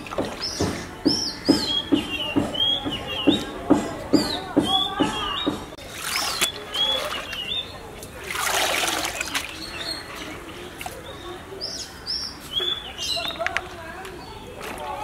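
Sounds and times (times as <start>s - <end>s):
water splashing: 0.0s - 3.2s, 4.6s - 12.0s, 14.4s - 15.0s
birds chirping: 0.0s - 15.0s
water draining through colander: 5.8s - 9.7s.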